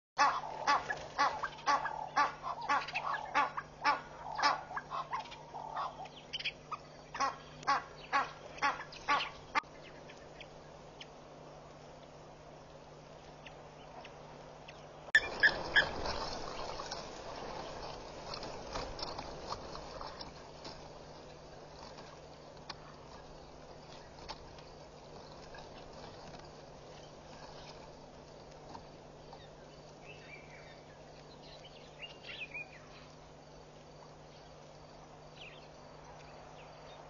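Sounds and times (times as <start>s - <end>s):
bird honking harshly: 0.2s - 6.0s, 7.2s - 9.6s.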